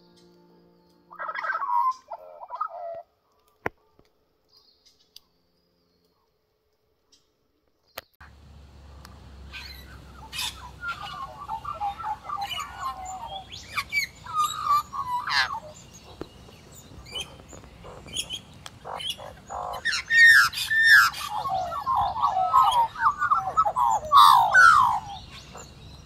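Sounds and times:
magpies warbling and squawking: 1.1 - 3.1, 9.2 - 26.0.

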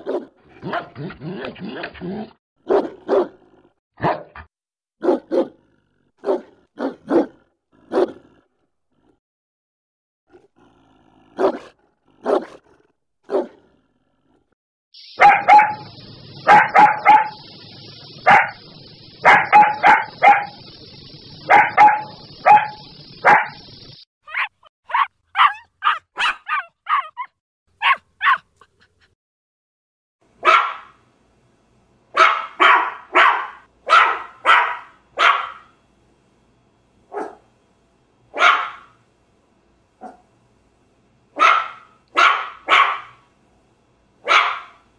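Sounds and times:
dogs barking: 0.0 - 1.2, 2.6 - 3.4, 4.0 - 5.6, 6.2 - 8.2, 11.4 - 12.6, 13.3 - 13.6, 15.1 - 20.8, 21.4 - 23.7, 24.3 - 28.5, 30.4 - 31.0, 32.2 - 35.8, 37.1 - 37.5, 38.3 - 39.0, 40.0 - 40.3, 41.4 - 43.2, 44.2 - 44.9.

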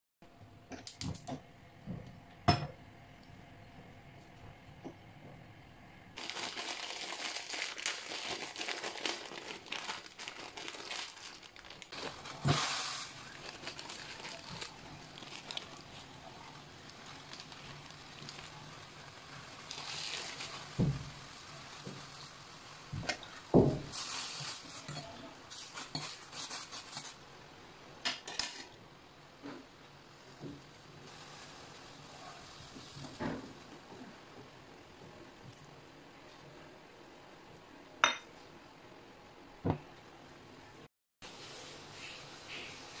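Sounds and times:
plastic packet crinkling: 6.2 - 18.8.

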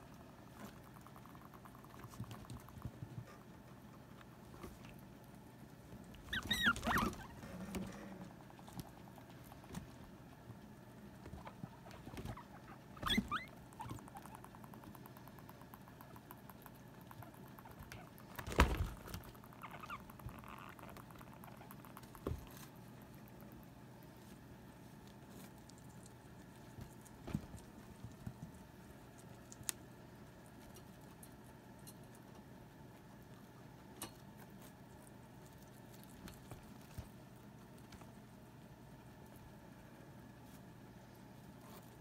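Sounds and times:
guinea pigs squeaking: 0.0 - 5.3, 5.9 - 42.0
soft rustling of movement: 17.6 - 42.0.

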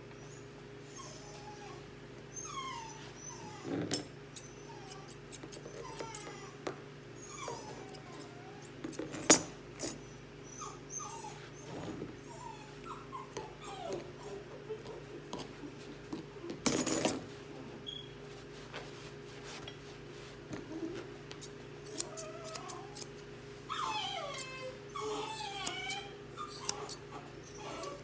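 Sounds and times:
puppy whimpering: 0.1 - 6.6, 7.2 - 8.8, 9.9 - 16.9, 21.9 - 28.0
scissors clicking: 21.4 - 23.2, 26.6 - 27.0.

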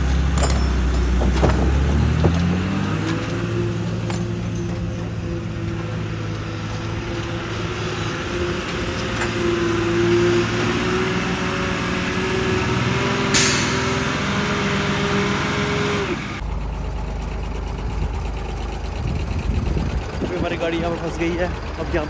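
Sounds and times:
diesel engine running: 0.0 - 22.0
air brakes hissing: 13.3 - 14.0.

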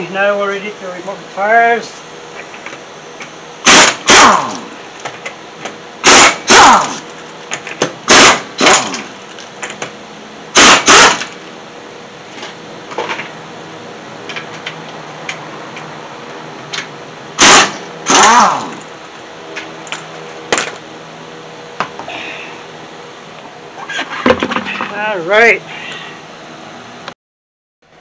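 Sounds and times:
pneumatic impact wrench bursts: 3.6 - 4.8, 6.0 - 7.1, 8.0 - 9.1, 10.5 - 11.4, 17.4 - 18.8.

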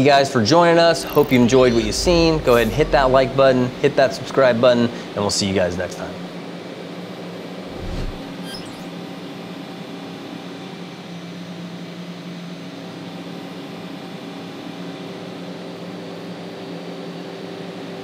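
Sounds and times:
machine shop hum: 0.5 - 4.6.

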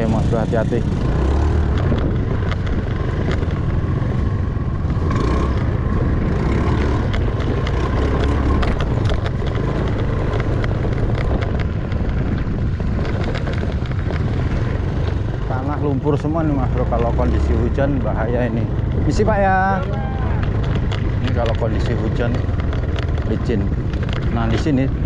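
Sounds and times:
scooter engine running: 0.0 - 25.0
wind rumble on microphone: 0.0 - 25.0
scooter knocks and rattles: 6.8 - 14.2.

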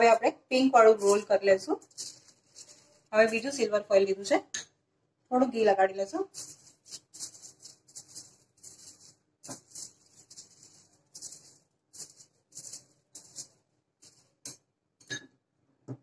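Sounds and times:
brush strokes on foil: 0.9 - 3.6, 6.0 - 14.6
brush clicking on glass bowl: 1.0 - 3.5, 6.2 - 14.7.

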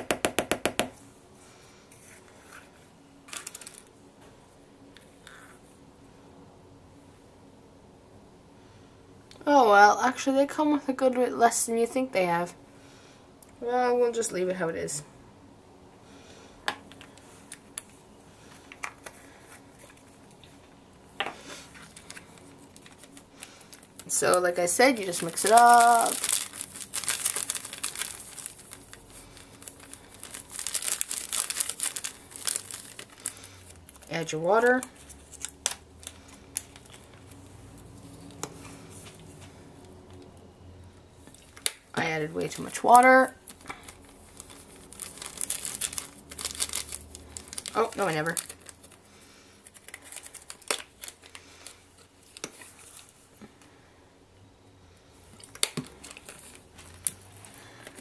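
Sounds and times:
plastic bag crinkling: 3.3 - 3.9, 21.4 - 39.3, 41.2 - 53.4, 55.2 - 58.0.

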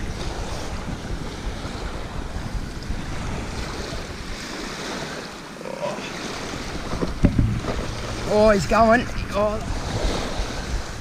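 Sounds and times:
small waves lapping on pebbles: 0.0 - 8.8
wind buffeting microphone: 0.0 - 11.0.

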